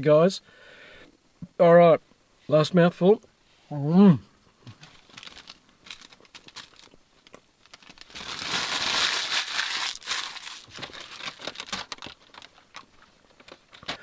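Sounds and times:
paper wrapper being crumpled: 4.8s - 14.0s.

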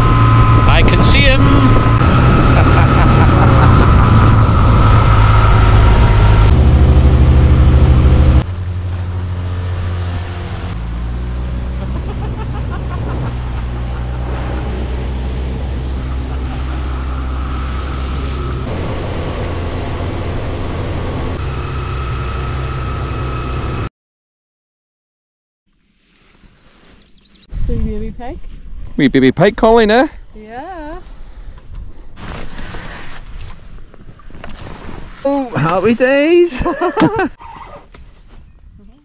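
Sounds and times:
outboard motor running: 0.0s - 23.8s.

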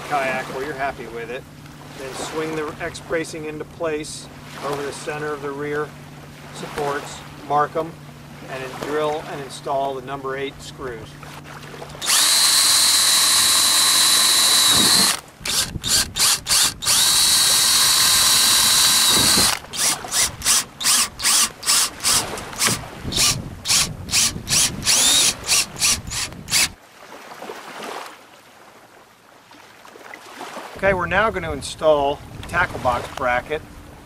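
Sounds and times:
cordless drill whining: 12.0s - 26.8s.

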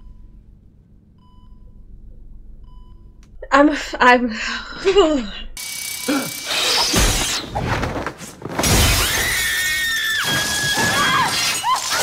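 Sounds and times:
crashing: 6.9s - 12.0s
glass shattering: 10.2s - 12.0s.

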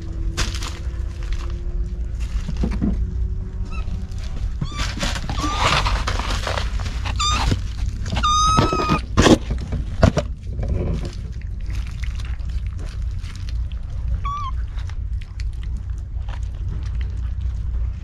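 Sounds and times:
rustling: 0.0s - 18.0s
steady low rumble: 0.0s - 18.0s
kittens mewing: 3.6s - 9.2s, 14.1s - 14.8s.

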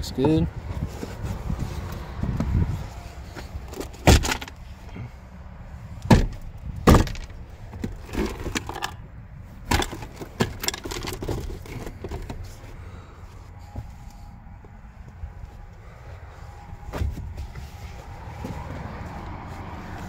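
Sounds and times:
plastic trim knocks and clunks: 6.0s - 8.9s, 9.7s - 12.4s.

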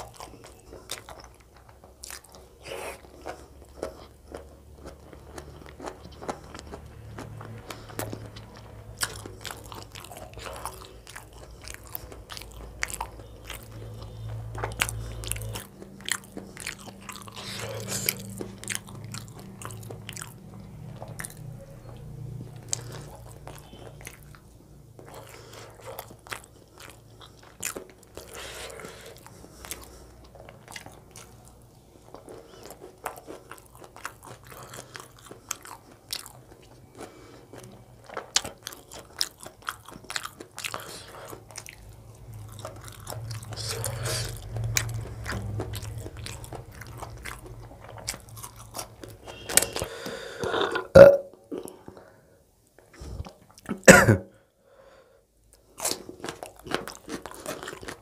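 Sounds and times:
close chewing mouth sounds: 0.0s - 54.5s, 55.4s - 58.0s.

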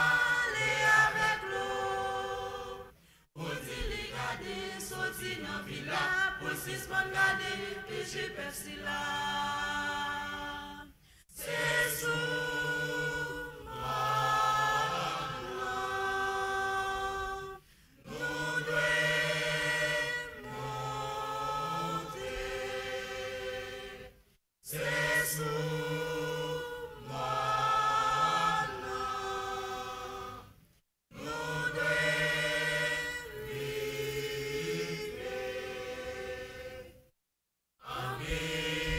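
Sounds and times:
church choir singing a hymn: 0.0s - 37.0s, 37.8s - 38.9s.

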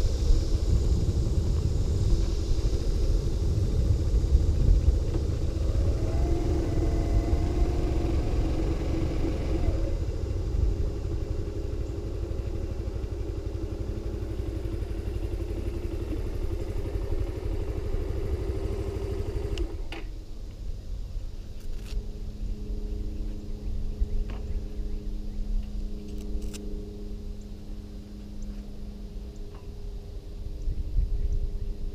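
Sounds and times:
wind buffeting microphone: 0.0s - 13.2s, 30.1s - 31.9s
motorcycle engine: 0.0s - 20.2s, 21.5s - 31.4s.

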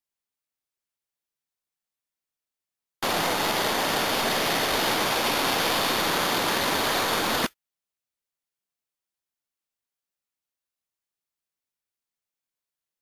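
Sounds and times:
river rapids rushing: 3.0s - 7.5s.

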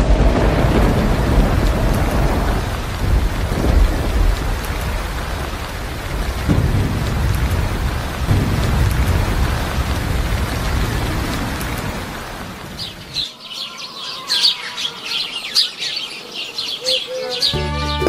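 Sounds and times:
thunder rumbling: 0.0s - 13.3s
heavy rain: 0.0s - 18.0s.

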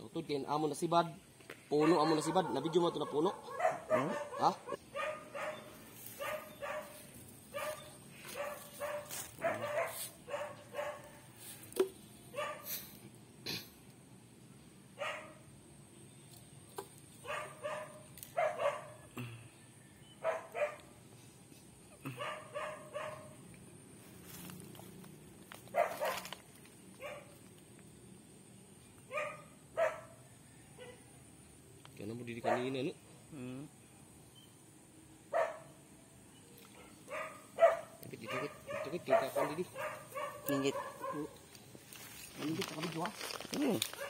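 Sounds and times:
dog barking: 1.7s - 11.2s, 12.3s - 12.7s, 15.0s - 15.4s, 17.2s - 19.1s, 20.2s - 20.9s, 22.1s - 23.4s, 25.7s - 26.3s, 27.0s - 27.4s, 29.1s - 30.2s, 32.4s - 32.9s, 35.3s - 35.8s, 36.7s - 41.4s.

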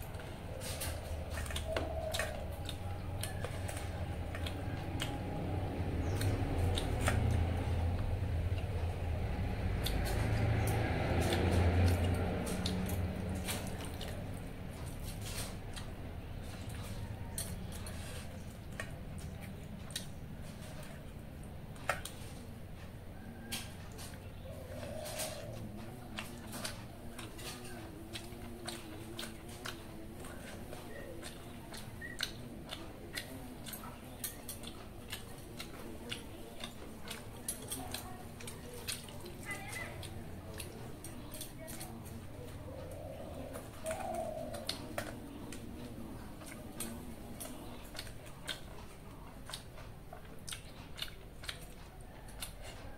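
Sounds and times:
chewing with mouth clicks: 0.0s - 52.9s
wet squishing: 0.0s - 52.9s.

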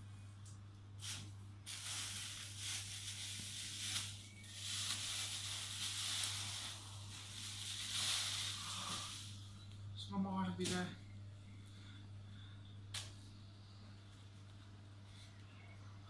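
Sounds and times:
steady low hum: 0.0s - 16.0s
plastic bag rustling: 1.0s - 9.5s.

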